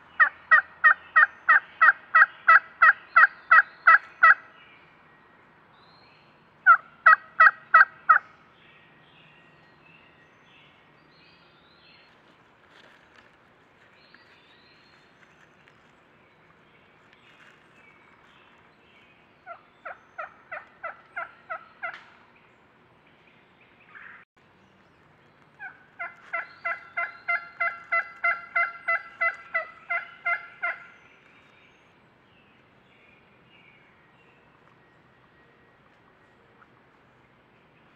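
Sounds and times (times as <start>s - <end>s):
wild turkeys calling: 0.0s - 4.5s, 6.6s - 8.4s, 19.4s - 22.1s, 25.6s - 31.2s
faint songbird chirps: 13.8s - 37.9s.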